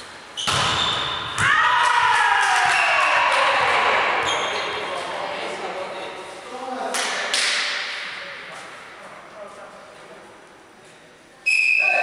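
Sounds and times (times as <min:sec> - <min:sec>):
volleyball being struck: 0:00.4 - 0:01.6
players shouting a cheer: 0:01.4 - 0:04.2.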